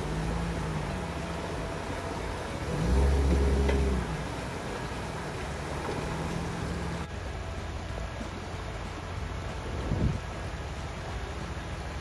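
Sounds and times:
off-road vehicle engine revving: 0.0s - 7.3s
fast-flowing water rushing: 0.0s - 12.0s.

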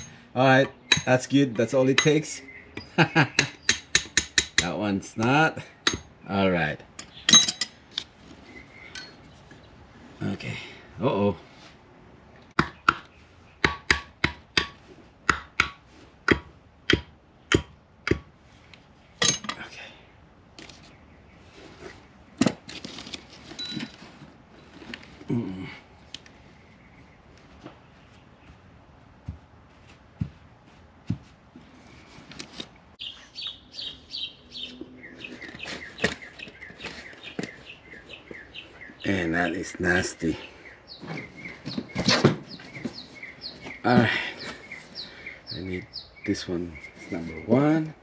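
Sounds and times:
bird chirping: 0.0s - 4.1s, 7.0s - 9.8s, 24.8s - 28.7s, 33.0s - 48.0s.

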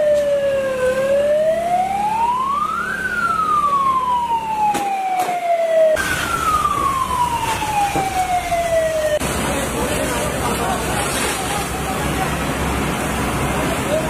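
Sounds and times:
emergency siren wailing: 0.0s - 9.6s.

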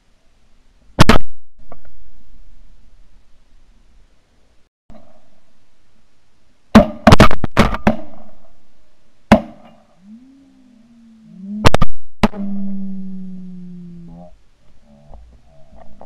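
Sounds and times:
faint low gliding tone: 9.8s - 16.0s.

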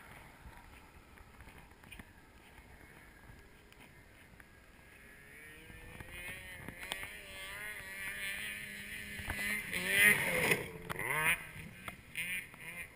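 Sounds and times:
snowmobile engine approaching: 0.0s - 12.9s.

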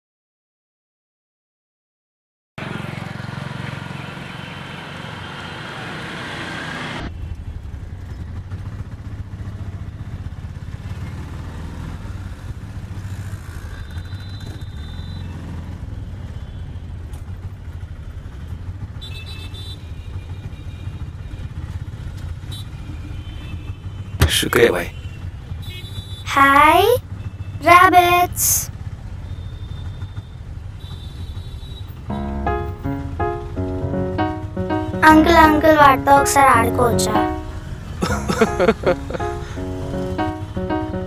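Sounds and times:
motorcycle passing: 2.6s - 14.1s, 15.2s - 16.3s, 32.0s - 41.0s
street traffic: 2.6s - 41.0s
vehicle engine droning: 37.3s - 41.0s.

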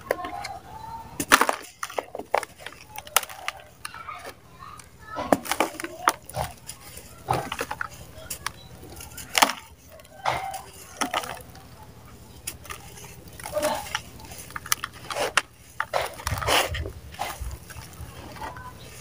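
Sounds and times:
dry mud crunching by hand: 0.0s - 19.0s.

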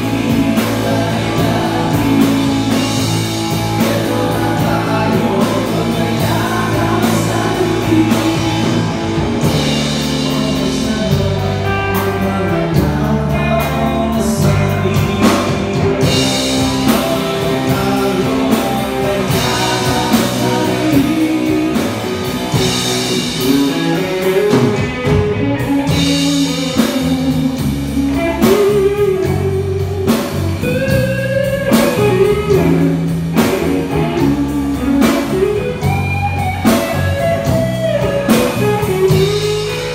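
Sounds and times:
live rock band playing: 0.0s - 39.9s
man singing lead vocal: 0.0s - 39.9s.

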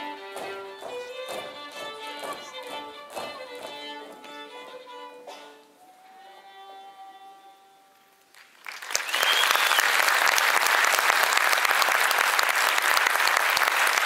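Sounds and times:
fiddle held note: 3.2s - 8.2s
audience applause: 8.3s - 14.0s
short high whistle: 9.0s - 10.0s.

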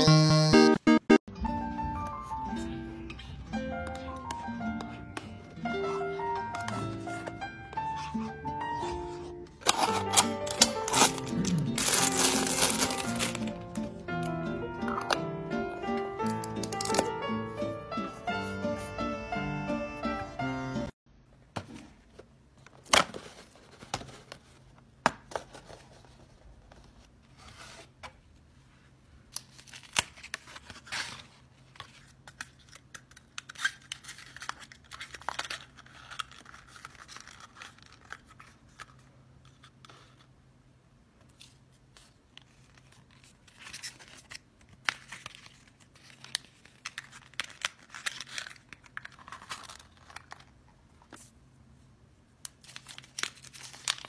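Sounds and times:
packaging crinkling: 9.6s - 13.6s, 29.5s - 39.6s, 42.1s - 51.2s, 52.5s - 54.0s
paper strip tearing and peeling: 9.7s - 13.5s.

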